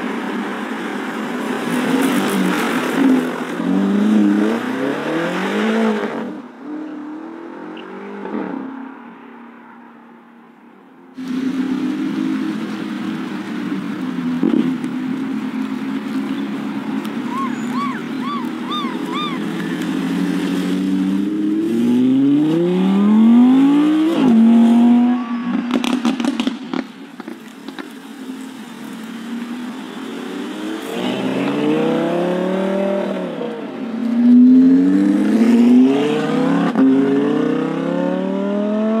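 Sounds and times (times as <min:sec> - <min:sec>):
sports car engines accelerating: 0:00.0 - 0:09.2, 0:11.2 - 0:39.0.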